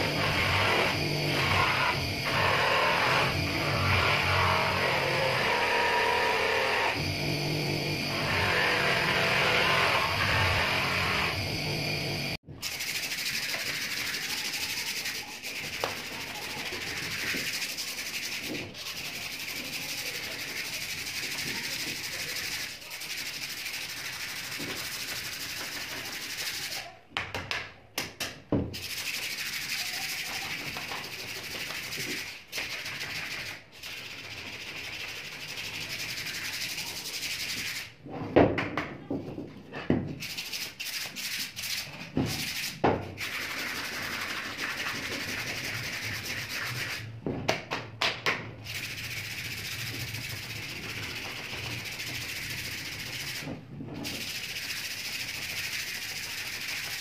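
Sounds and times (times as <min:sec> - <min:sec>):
sandpaper sanding wood: 0:12.6 - 0:26.8, 0:28.8 - 0:38.0, 0:40.2 - 0:47.1, 0:48.6 - 0:57.0.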